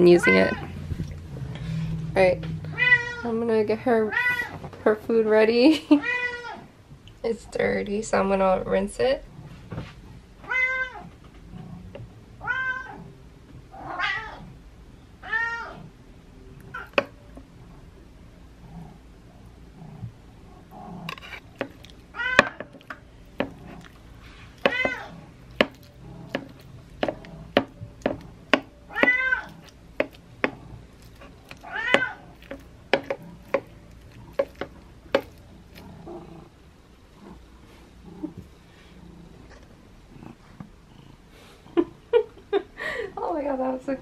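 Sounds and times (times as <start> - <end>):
cat meowing: 0.2 - 0.8, 2.7 - 3.3, 12.4 - 13.0, 15.2 - 15.8, 22.1 - 22.6, 24.7 - 25.2, 28.9 - 29.7, 31.6 - 32.3
spoon scraping ceramic bowl: 21.1 - 35.9.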